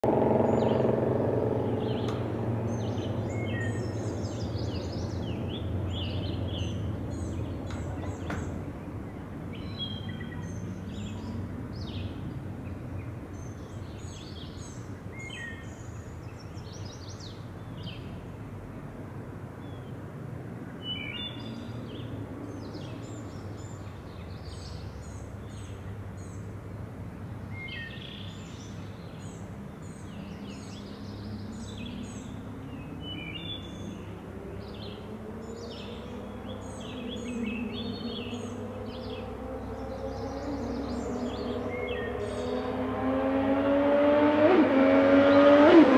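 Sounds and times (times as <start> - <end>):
low outdoor rumble: 0.0 - 14.0
songbirds chirping and singing: 0.0 - 18.1, 27.4 - 43.8.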